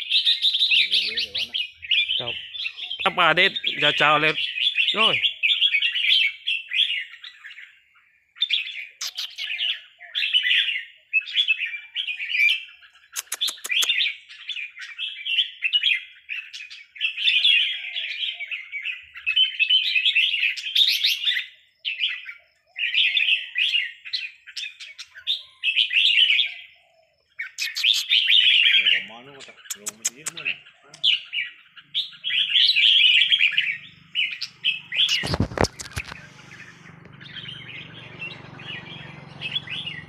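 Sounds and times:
bulbuls singing: 0.0s - 40.0s
sharp clicks: 13.2s - 14.0s, 29.4s - 31.1s, 35.0s - 37.2s.

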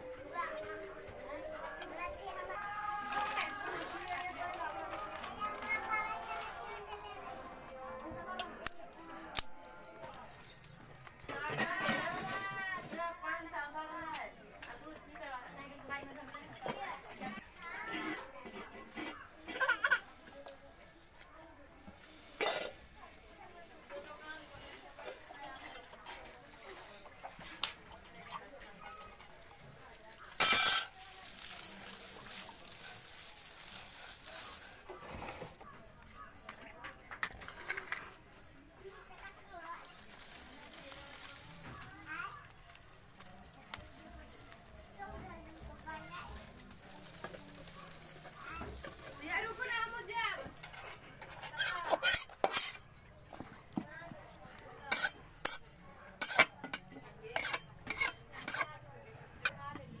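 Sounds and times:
dry straw rustling and crinkling: 0.0s - 59.6s
metal spatula scraping iron pan: 30.3s - 31.7s, 45.6s - 52.9s, 54.8s - 59.5s.

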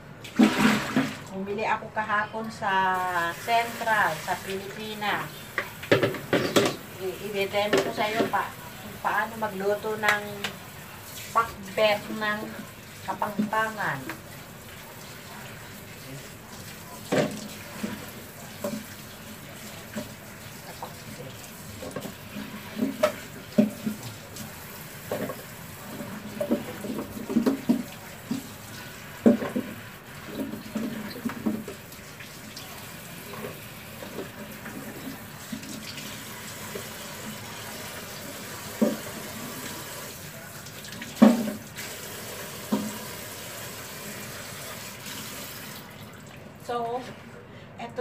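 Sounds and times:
tap running into sink: 5.5s - 6.9s, 7.7s - 8.4s, 17.0s - 19.1s, 19.8s - 32.0s, 32.6s - 39.8s, 40.9s - 43.3s
plastic bowl knocking: 5.9s - 6.8s.

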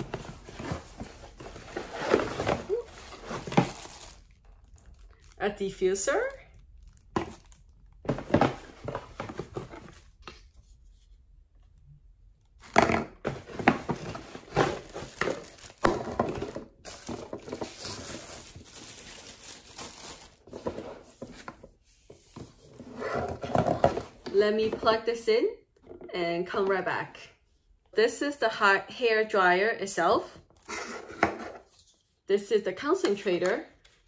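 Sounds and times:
plastic wrapping crinkling: 2.6s - 8.0s, 14.0s - 16.1s, 16.8s - 20.6s.

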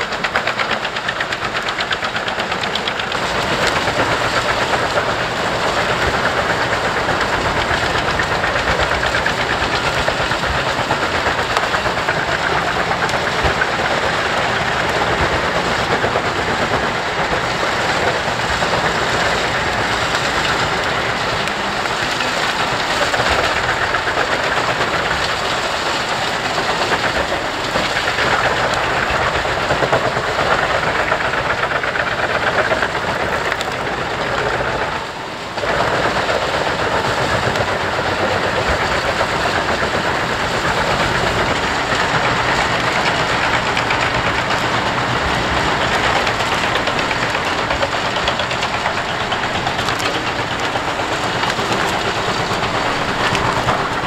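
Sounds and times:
wood chipper chipping brush: 0.0s - 54.0s.

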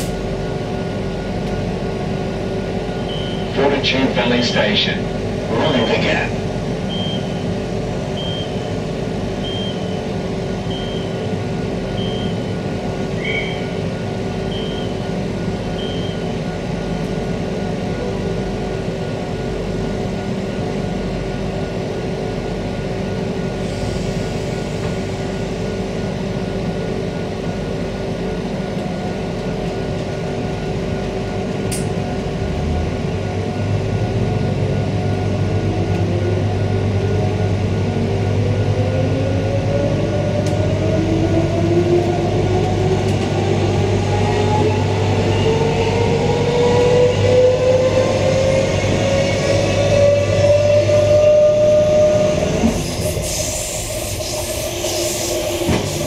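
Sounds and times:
short high beeps: 3.1s - 3.5s
rising traction motor tone: 37.9s - 53.1s.

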